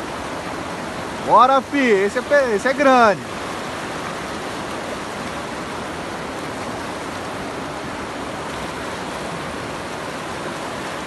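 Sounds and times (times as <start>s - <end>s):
river rushing through rapids: 0.0s - 11.0s.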